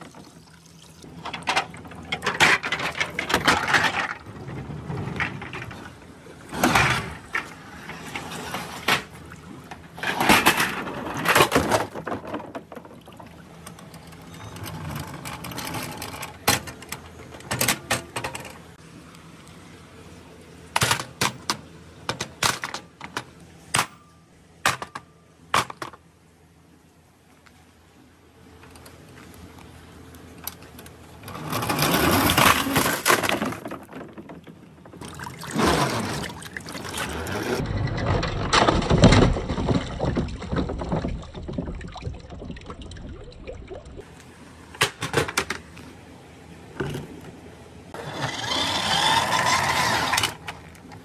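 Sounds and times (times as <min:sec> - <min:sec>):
plastic toys rustling and scraping: 0:01.1 - 0:18.8, 0:30.3 - 0:42.8, 0:46.8 - 0:51.0.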